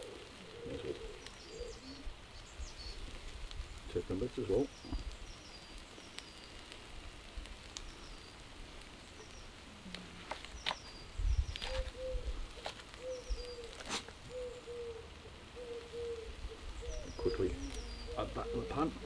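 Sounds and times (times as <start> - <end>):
low bird call: 0.0 - 3.0, 10.5 - 19.0
birds chirping: 0.0 - 19.0.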